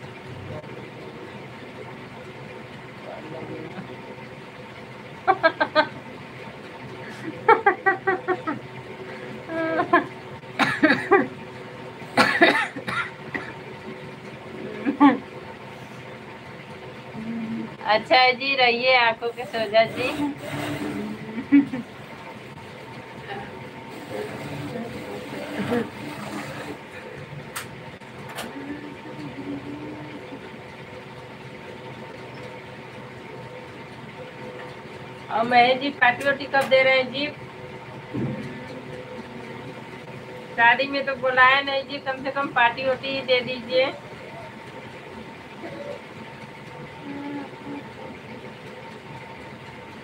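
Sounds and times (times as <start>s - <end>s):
sewing machine motor hum: 0.0s - 50.0s
woman laughing: 5.2s - 6.0s, 7.0s - 8.7s, 9.3s - 11.4s, 12.2s - 13.6s, 14.6s - 15.3s, 21.0s - 21.9s, 25.5s - 26.0s.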